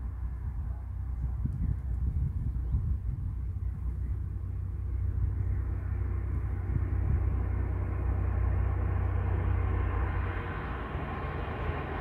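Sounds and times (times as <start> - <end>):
diesel locomotive engine rumble: 0.0 - 12.0.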